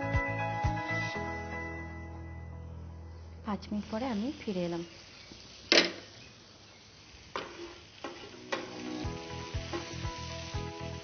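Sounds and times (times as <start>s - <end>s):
food sizzling in pan: 0.0s - 1.8s, 3.6s - 11.0s
background music: 0.0s - 3.1s, 8.4s - 11.0s.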